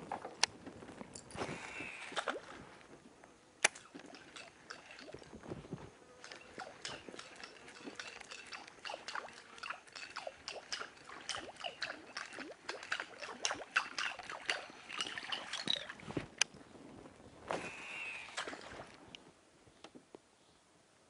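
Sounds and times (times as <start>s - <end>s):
small water plinks: 3.6s - 5.5s, 6.2s - 16.5s, 17.7s - 19.2s
fish splashing in water: 3.8s - 5.3s, 6.2s - 16.0s, 17.6s - 18.9s.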